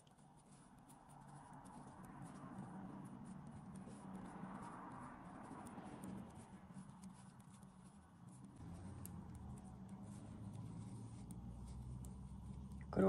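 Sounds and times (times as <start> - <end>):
knitting needles clicking: 0.0 - 13.0
yarn rubbing: 0.0 - 13.0
low steady hum: 7.8 - 13.0.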